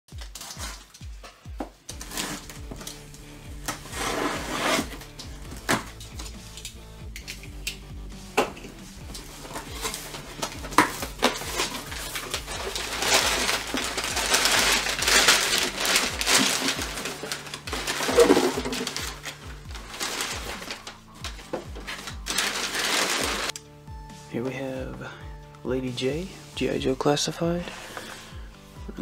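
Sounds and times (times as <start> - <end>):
packing paper crinkling: 0.1 - 1.1, 9.1 - 23.6
quiet background music: 0.1 - 29.0.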